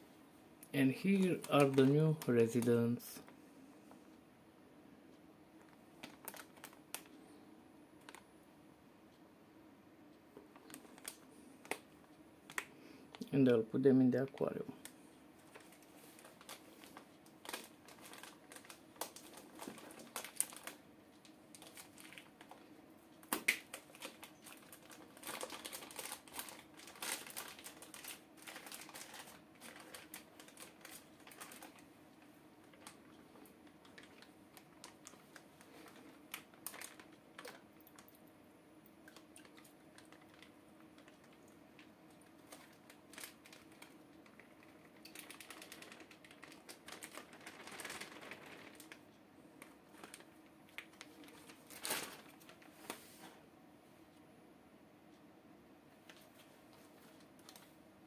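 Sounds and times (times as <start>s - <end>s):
plastic bag crinkling: 0.9s - 3.3s, 5.6s - 7.2s, 10.5s - 11.9s, 14.8s - 22.6s, 23.2s - 31.9s, 32.6s - 38.2s, 39.0s - 53.1s, 56.1s - 57.8s.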